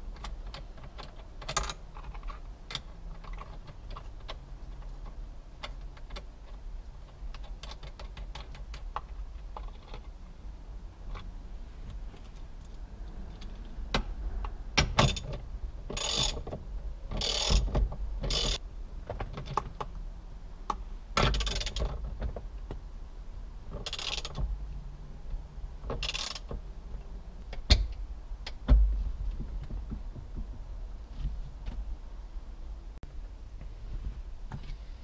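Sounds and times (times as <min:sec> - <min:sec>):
ratchet wrench clicking: 0:16.0 - 0:16.4, 0:17.2 - 0:18.6, 0:21.2 - 0:21.9, 0:23.8 - 0:24.4, 0:26.0 - 0:26.5.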